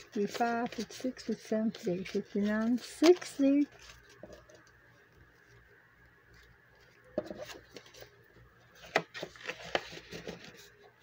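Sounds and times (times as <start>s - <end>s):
paper money rustling: 0.0s - 4.4s.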